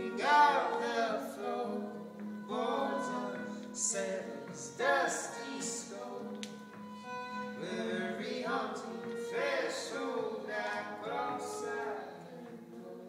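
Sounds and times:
acoustic guitar: 0.0 - 13.0
bowed violin: 0.0 - 13.0
person singing: 0.0 - 13.0.

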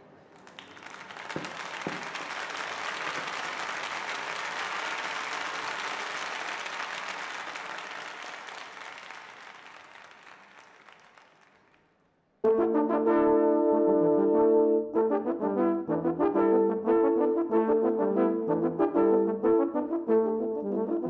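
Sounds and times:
dense clapping: 0.4 - 12.0.

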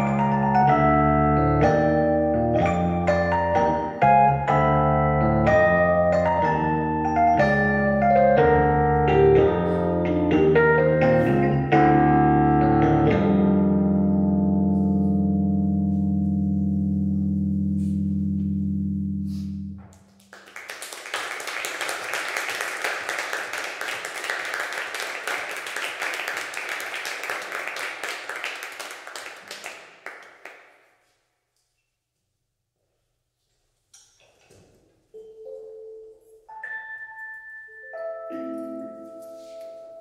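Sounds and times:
electric piano chord: 0.0 - 20.0, 35.2 - 40.0.

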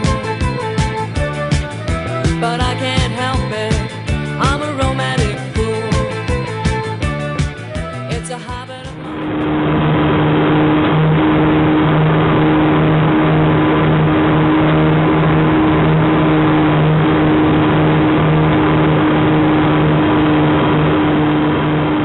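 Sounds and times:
propeller aircraft engine droning: 0.0 - 22.0.

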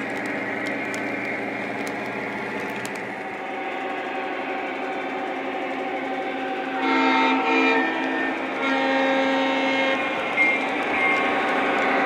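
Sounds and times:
train running on track: 0.0 - 12.0
model train horn blasts: 3.5 - 11.5.

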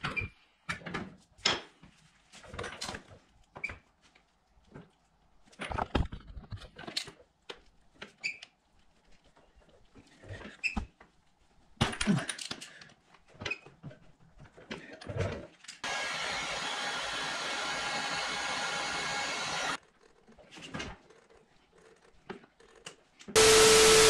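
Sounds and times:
electric power tool running: 15.8 - 19.8, 23.4 - 24.0.

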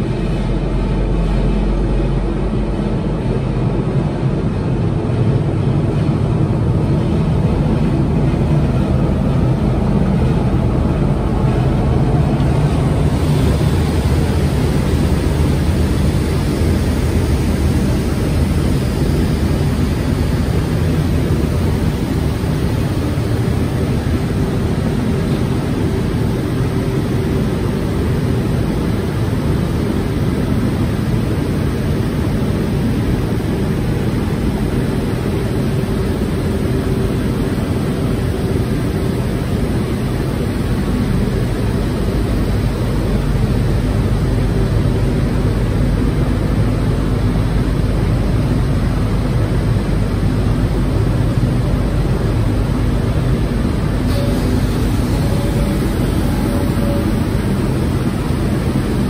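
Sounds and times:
glass washing machine drone: 0.0 - 59.0
high hiss: 53.9 - 59.0.

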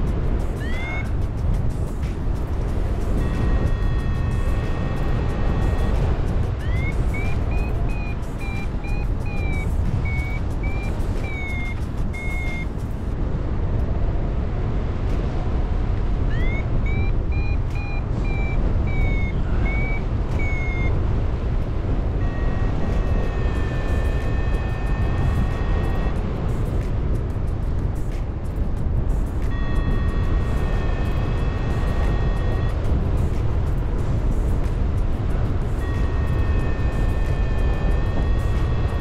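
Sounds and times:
variometer steady low tone: 0.0 - 1.4, 2.2 - 12.8, 16.2 - 26.8, 29.2 - 39.0
wind rushing over microphone: 0.0 - 39.0
variometer beeping: 0.5 - 1.2, 3.0 - 12.8, 16.3 - 26.8, 29.4 - 34.4, 35.3 - 39.0.

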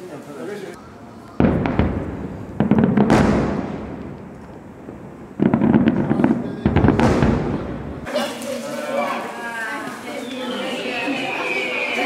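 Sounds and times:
fireworks crackling and bangs: 0.8 - 8.7.

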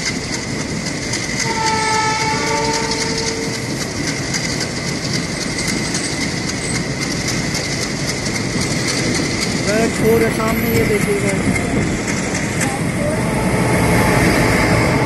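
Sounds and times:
train running and rattling: 0.0 - 15.0
train horn: 1.4 - 3.7, 13.0 - 15.0.

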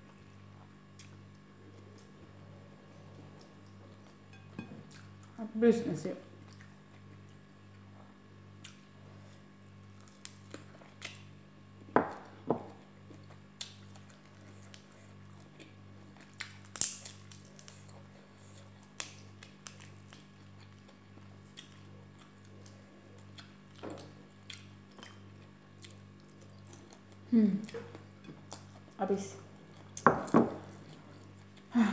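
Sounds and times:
chewing: 0.6 - 2.2, 6.4 - 11.3, 12.7 - 29.0.

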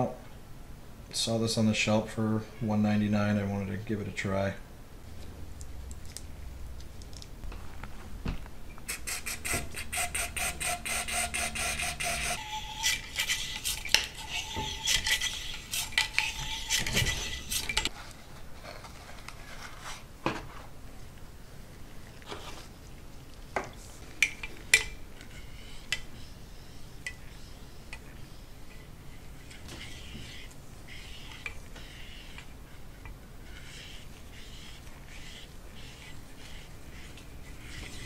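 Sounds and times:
brush scrubbing inside metal barrel: 8.9 - 17.9.

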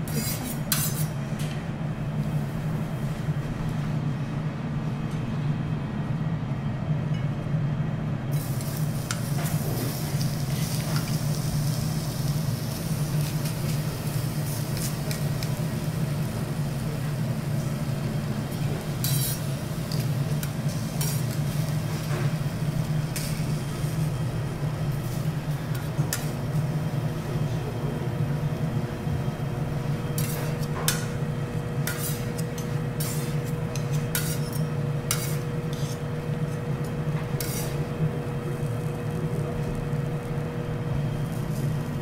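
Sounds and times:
fork and spatula scraping steel: 0.1 - 1.1, 19.0 - 19.5, 30.2 - 31.0, 31.8 - 36.1, 37.4 - 37.8
garlic sizzling on griddle: 8.4 - 24.1, 37.2 - 40.4.

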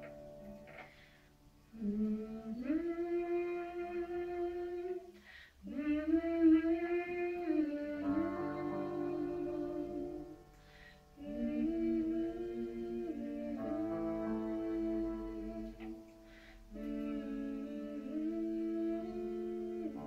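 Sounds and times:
piano accompaniment: 0.0 - 5.1, 6.3 - 20.0
singer breathing: 0.8 - 1.4, 5.2 - 5.6, 10.5 - 11.1, 16.1 - 16.8
woman singing: 1.7 - 10.5, 11.2 - 16.1, 16.7 - 20.0.

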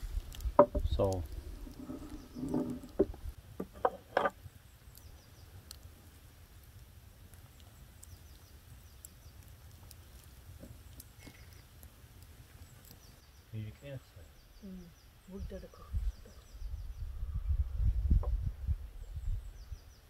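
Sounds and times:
tableware knocking on wooden table: 0.6 - 0.9.

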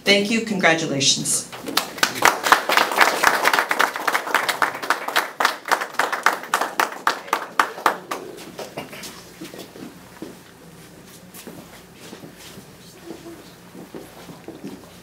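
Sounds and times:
small group clapping: 1.5 - 9.2.

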